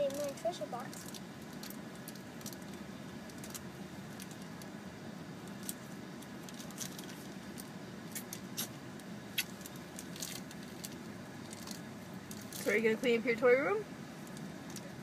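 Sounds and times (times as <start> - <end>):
car interior hum: 0.0 - 15.0
rustles: 5.4 - 13.1.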